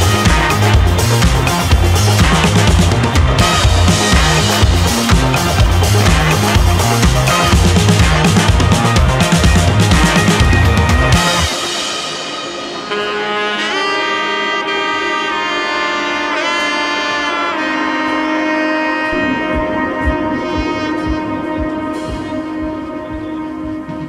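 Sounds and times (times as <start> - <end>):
steady low beat: 0.0 - 13.0, 19.0 - 24.0
held melodic notes with sliding pitch: 0.0 - 24.0.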